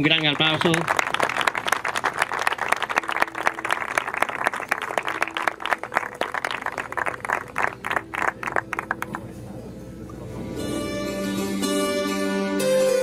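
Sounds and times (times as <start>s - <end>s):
small group applauding: 0.0s - 9.4s.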